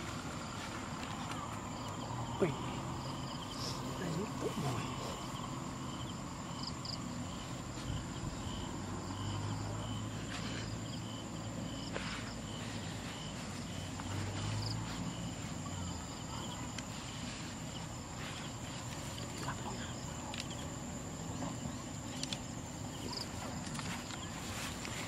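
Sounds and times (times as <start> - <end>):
insects whining and chirping: 0.0 - 25.0
dry grass rustling: 10.0 - 25.0.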